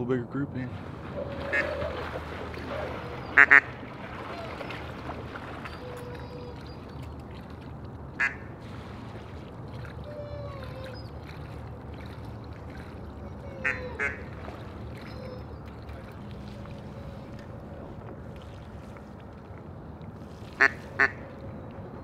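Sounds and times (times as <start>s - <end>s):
ducks whistling and chattering: 1.1s - 7.2s, 13.4s - 14.2s, 14.9s - 17.3s
duck quacking: 1.2s - 2.0s, 2.6s - 3.7s, 8.2s - 8.5s, 13.6s - 14.2s, 20.6s - 21.2s.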